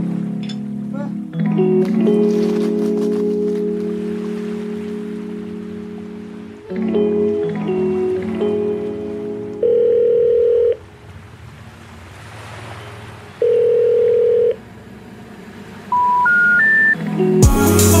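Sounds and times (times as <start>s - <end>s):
long electronic beeps: 15.9s - 17.0s
rising run of beeps: 15.9s - 17.0s
electronic tone music: 15.9s - 18.0s.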